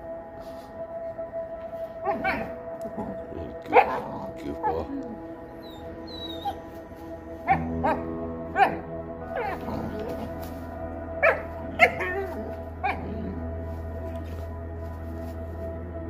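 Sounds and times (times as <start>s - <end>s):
background music: 0.0s - 16.0s
puppy whining: 2.0s - 6.8s
puppies yipping and barking: 5.5s - 6.7s.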